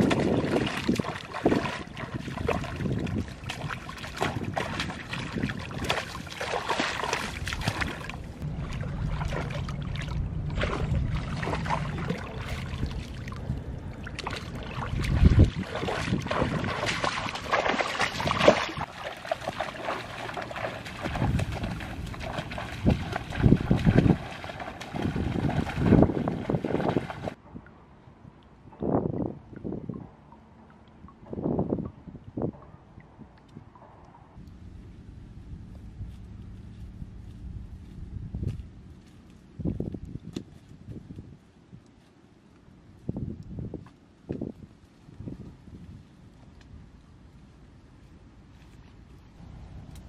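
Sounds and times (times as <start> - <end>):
muddy water splashing: 0.0 - 27.4.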